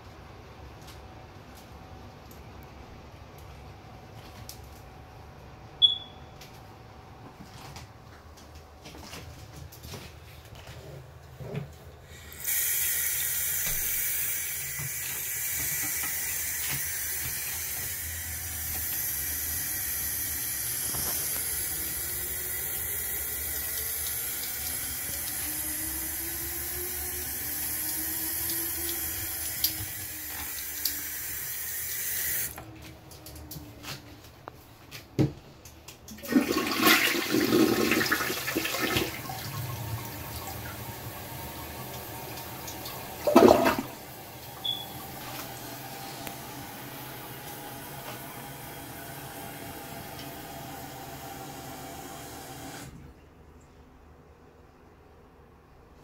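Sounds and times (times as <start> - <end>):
toilet flushing: 12.4 - 32.6, 36.1 - 53.1
faucet running into sink: 20.9 - 32.6, 36.2 - 46.4.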